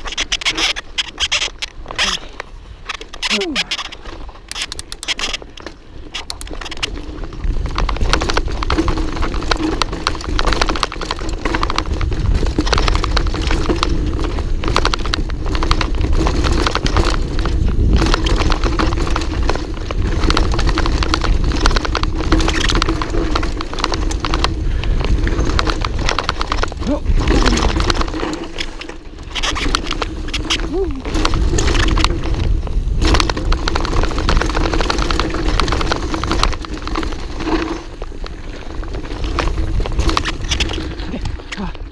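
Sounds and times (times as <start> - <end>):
mountain bike clattering: 0.0 - 41.9
wind on microphone: 11.5 - 37.5.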